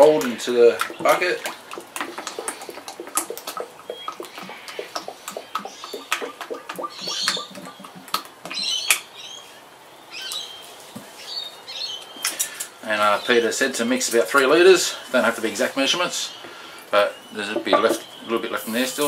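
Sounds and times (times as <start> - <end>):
liquid glugging from a tin: 0.0 - 8.7, 17.4 - 18.2
water splashing: 0.0 - 9.0.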